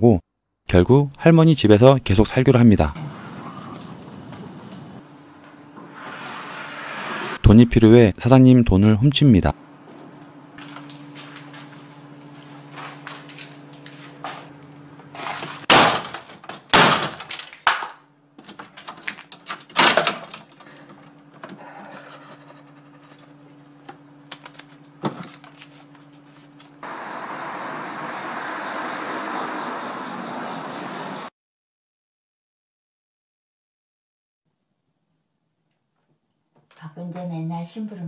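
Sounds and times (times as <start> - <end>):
low electrical hum: 0.0 - 28.4
distant traffic: 2.2 - 7.4, 26.8 - 31.3.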